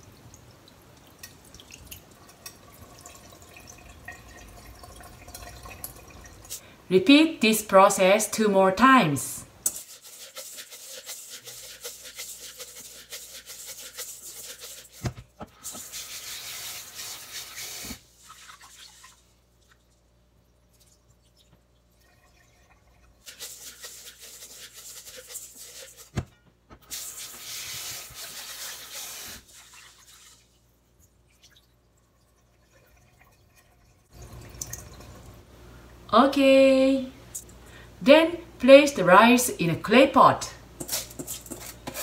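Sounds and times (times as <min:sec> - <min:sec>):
water pouring into steel sink: 0:00.2 - 0:06.6, 0:15.6 - 0:20.0, 0:20.7 - 0:26.0, 0:26.9 - 0:35.4
hands scrubbing wet rice: 0:09.7 - 0:15.1, 0:23.2 - 0:26.1.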